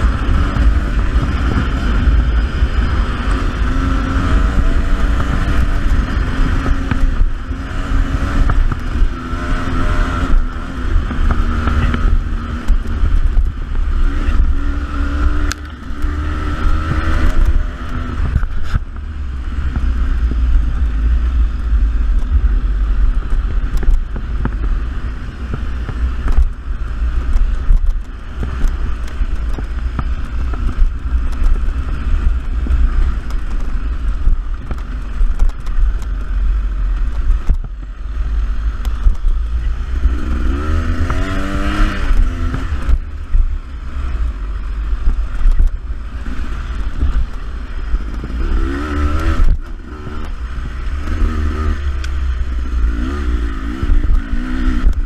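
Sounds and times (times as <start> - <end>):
heavy low rumble: 0.0 - 55.0
dirt bike engine revving: 40.0 - 43.2, 46.2 - 55.0.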